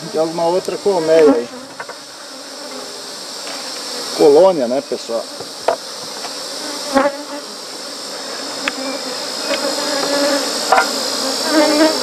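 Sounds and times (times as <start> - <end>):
honeybees buzzing: 0.0 - 12.0
sharp knocks on wooden hive box: 5.4 - 6.4, 9.5 - 11.0.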